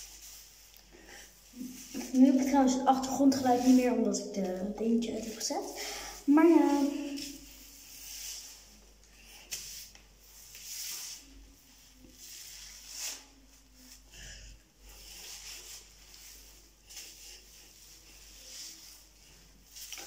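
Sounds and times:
hands squishing wet hair: 6.2 - 14.1.

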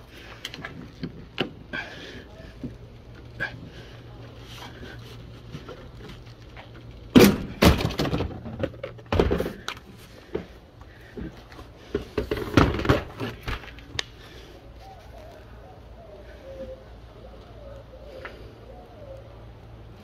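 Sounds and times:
plastic car parts clattering: 5.7 - 10.6, 11.2 - 14.0.

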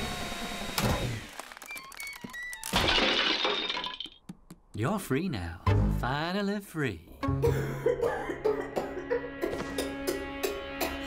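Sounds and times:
glass shattering: 2.6 - 4.2.

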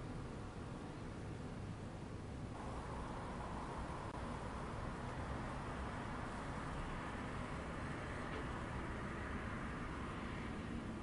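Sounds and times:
storm rushing noise: 2.6 - 7.4.

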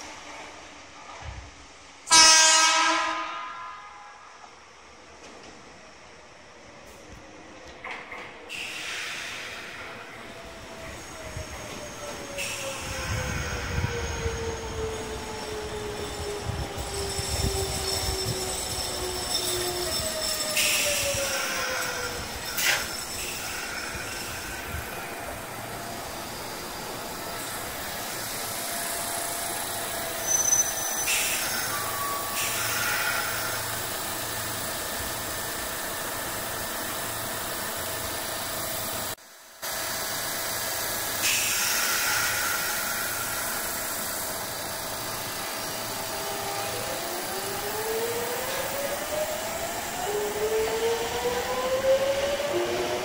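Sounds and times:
brief hisses: 8.5 - 10.3, 12.4 - 13.6, 41.2 - 44.4
electric train humming: 9.4 - 53.0.

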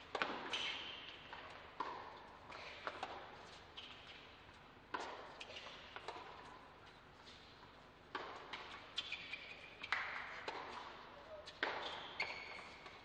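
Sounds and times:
tennis ball bouncing on hard court: 0.0 - 4.2, 4.9 - 6.6, 8.1 - 13.0
tennis racket hitting ball: 0.1 - 4.0, 4.9 - 6.5, 8.1 - 9.2, 9.8 - 12.1.

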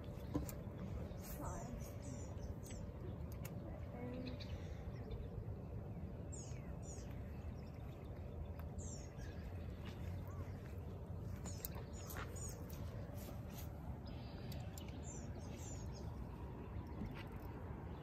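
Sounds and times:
birds chirping: 0.0 - 18.0
low outdoor rumble: 0.0 - 18.0.

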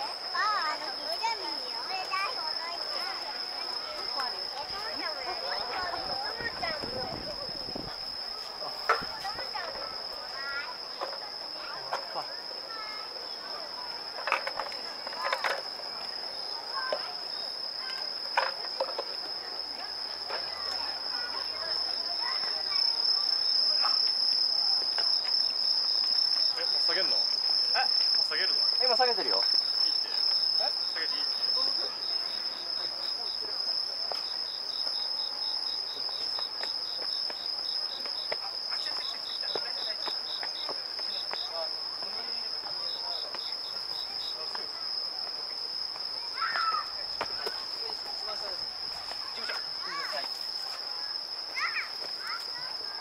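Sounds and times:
insect chirping in rapid pulses: 0.0 - 53.0
insect high-pitched trill: 0.0 - 53.0.

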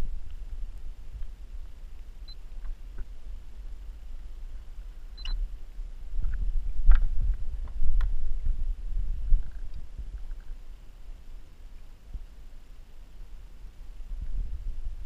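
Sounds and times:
high beeps: 5.2 - 5.4.

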